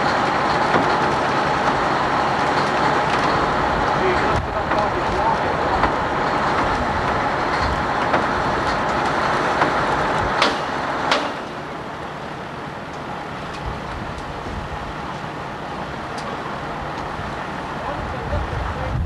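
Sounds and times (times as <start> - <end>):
heavy equipment running: 0.0 - 19.0
sharp knocks: 9.6 - 11.6.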